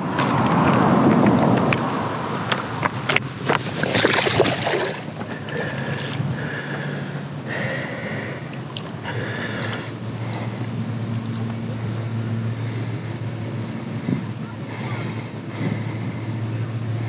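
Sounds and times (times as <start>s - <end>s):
steady low hum: 0.0s - 17.0s
fish splashing and thrashing in water: 2.5s - 6.8s.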